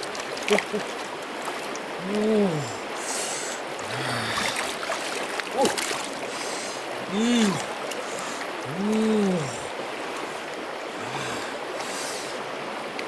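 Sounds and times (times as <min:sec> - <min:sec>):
river water sloshing and trickling: 0:00.0 - 0:13.0
hands splashing in water: 0:04.4 - 0:06.3.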